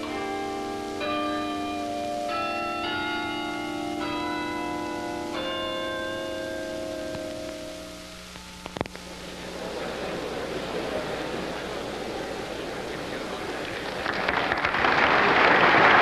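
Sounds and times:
tower bells ringing a slow tune: 0.0 - 9.8.

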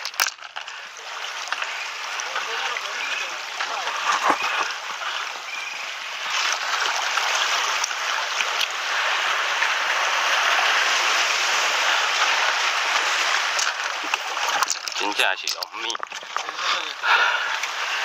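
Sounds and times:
seawater rushing between boulders: 0.0 - 18.0.

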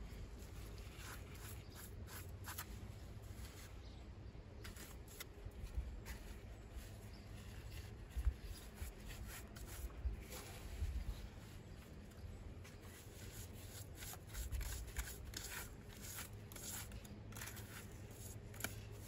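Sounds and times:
trowel scraping mortar: 13.0 - 19.0.

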